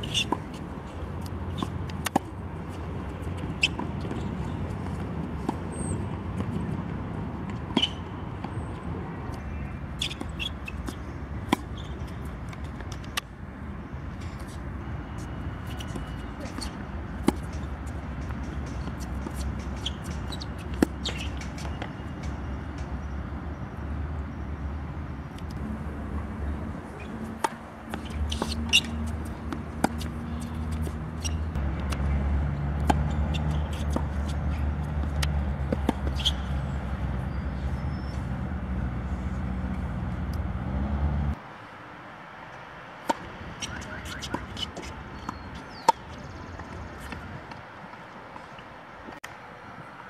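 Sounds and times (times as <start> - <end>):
rackets striking tennis ball: 15.7 - 23.0, 26.8 - 37.2.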